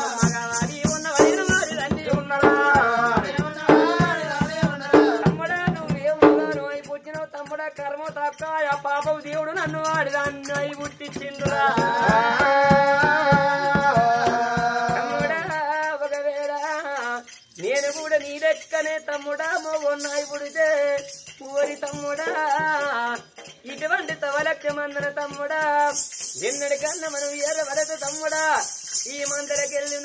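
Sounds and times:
people singing: 0.0 - 6.8, 9.6 - 18.4, 19.2 - 23.4
jingling hand cymbals and bells: 0.0 - 30.0
barrel drum beating: 0.2 - 6.7.

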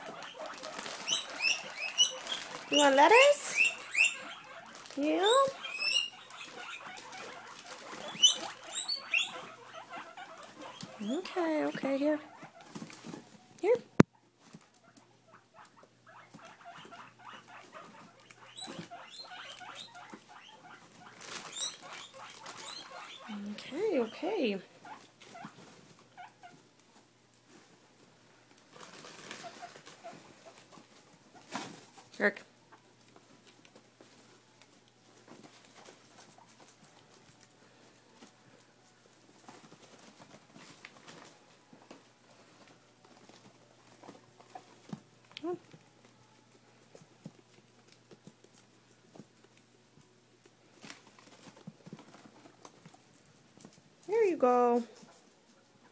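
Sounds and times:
guinea pig high squeaks: 0.0 - 13.2, 14.8 - 26.6, 28.9 - 30.8
guinea pigs chewing lettuce: 0.0 - 55.9.

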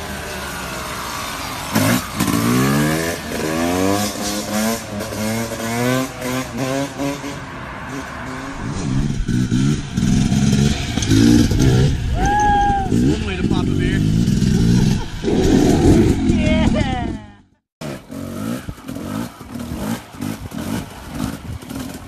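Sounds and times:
dirt bike engine revving: 0.0 - 22.0
rough loud engine noise: 8.1 - 22.0.

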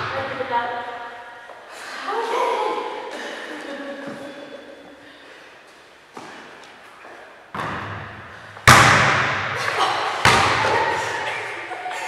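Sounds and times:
ball thudding in echoing hall: 0.0 - 1.6, 7.4 - 12.0.

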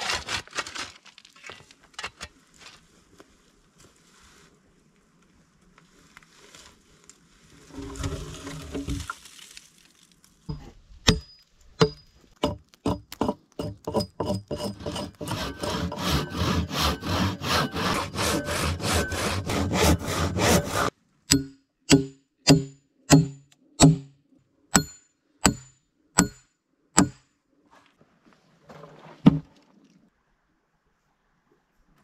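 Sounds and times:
hatchet blows into wood: 11.0 - 24.1
hatchet scraping bark: 11.8 - 24.1.

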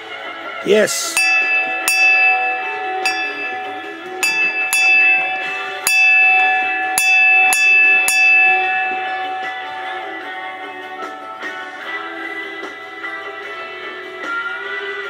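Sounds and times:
small brass bell ringing: 1.0 - 12.6.

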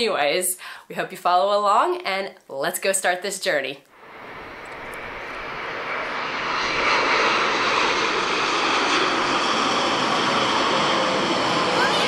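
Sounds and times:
airplane flying overhead: 4.0 - 12.0.

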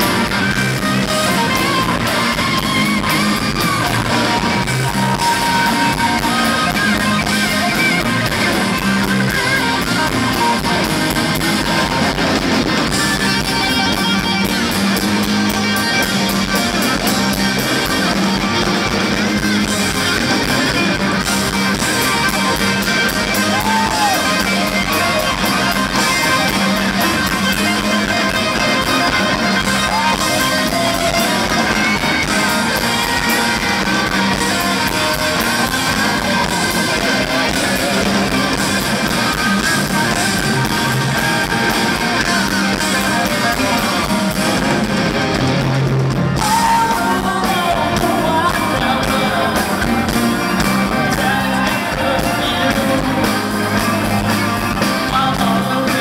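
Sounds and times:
live rock band playing: 0.0 - 56.0
woman singing: 46.4 - 50.2.

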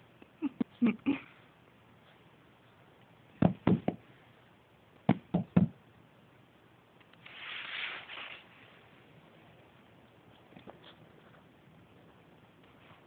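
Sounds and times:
rustling scuffle: 7.2 - 8.9.

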